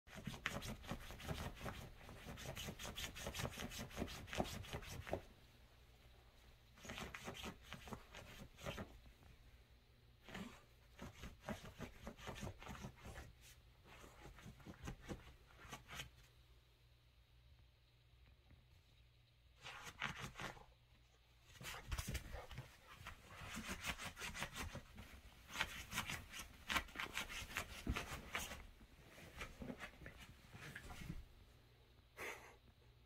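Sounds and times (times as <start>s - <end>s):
dogs scuffling on bed sheets: 21.5s - 31.3s.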